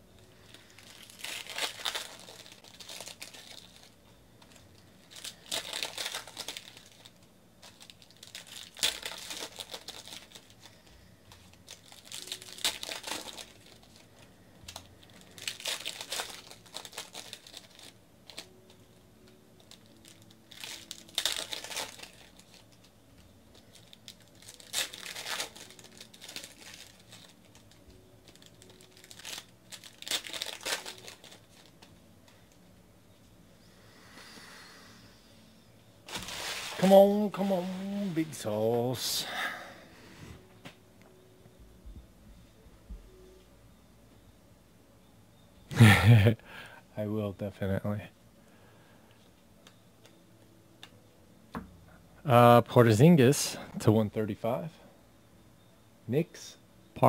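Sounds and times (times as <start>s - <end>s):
foil wrappers crinkling and tearing: 0.2s - 32.6s, 36.1s - 39.3s.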